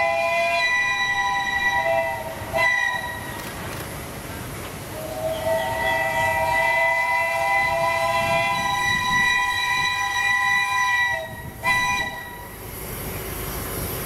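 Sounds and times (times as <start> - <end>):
steam locomotive whistle chord: 0.0 - 3.3, 5.0 - 12.6.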